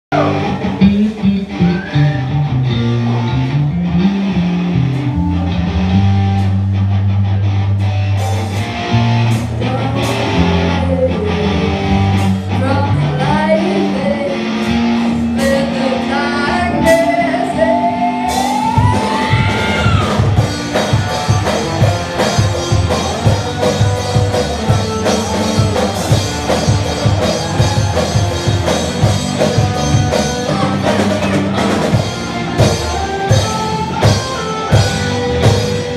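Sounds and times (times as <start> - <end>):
live rock band playing: 0.1 - 35.9
woman singing: 9.6 - 11.8, 12.5 - 19.0
drums beating: 18.0 - 35.9.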